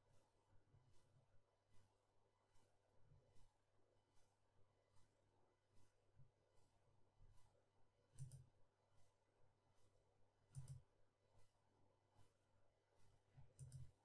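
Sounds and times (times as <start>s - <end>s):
computer mouse clicks: 8.1s - 8.5s, 10.5s - 10.9s, 13.4s - 14.0s
faint ticks: 8.2s - 8.5s, 10.5s - 11.5s, 13.0s - 14.0s.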